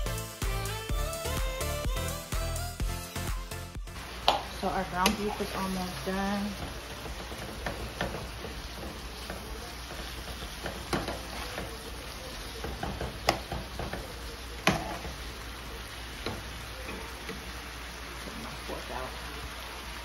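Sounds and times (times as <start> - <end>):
meat sizzling in a pan: 3.9 - 20.0
utensil knocking against pan: 12.6 - 14.0.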